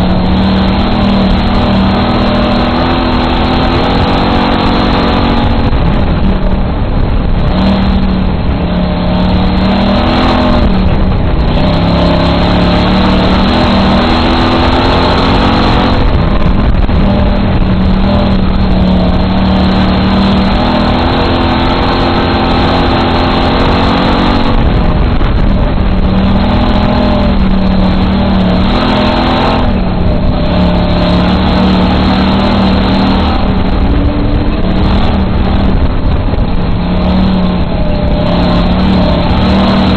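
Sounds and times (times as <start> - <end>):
race car engine: 0.0 - 39.9.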